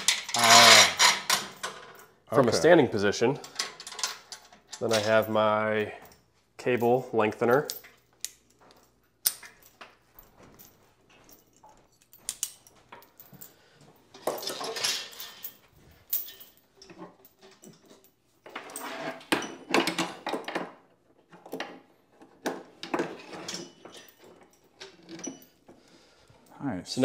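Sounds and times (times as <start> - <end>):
metal cable pulley clinking: 0.0 - 2.5.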